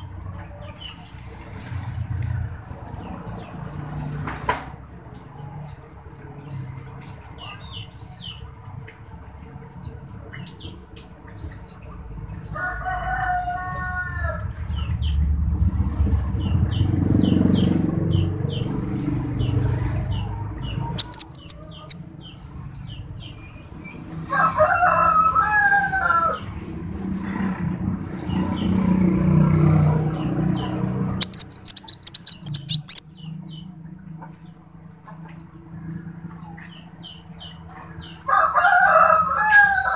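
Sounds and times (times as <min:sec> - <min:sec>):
rooster crowing: 0:12.6 - 0:14.4, 0:24.3 - 0:26.4, 0:38.3 - 0:39.9
sunbird chirping and trilling: 0:20.2 - 0:22.1, 0:30.2 - 0:33.4.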